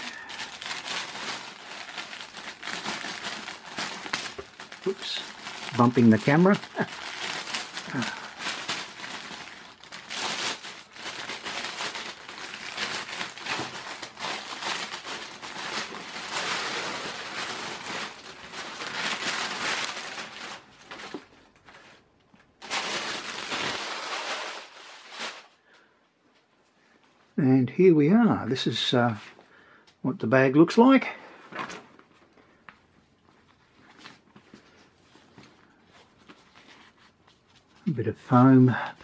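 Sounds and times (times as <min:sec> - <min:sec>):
plastic bag crinkling: 0:00.0 - 0:25.7.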